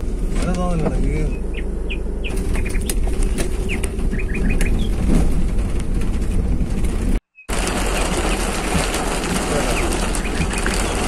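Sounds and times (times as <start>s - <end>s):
vehicle rumble: 0.0s - 11.0s
bird chirping: 1.1s - 5.1s, 7.3s - 8.5s
rain hiss: 7.5s - 11.0s.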